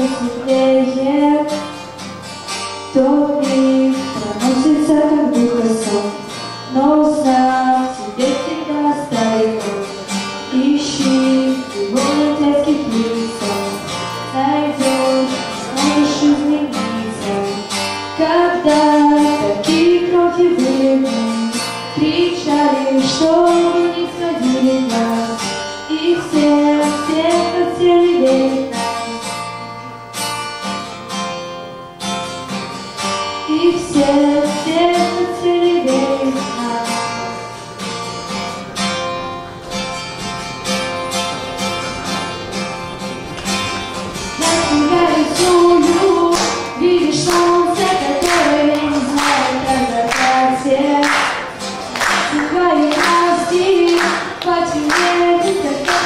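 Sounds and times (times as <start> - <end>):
woman singing: 0.0 - 1.8, 2.9 - 29.4, 33.4 - 37.4, 44.4 - 56.0
acoustic guitar strumming: 0.0 - 56.0.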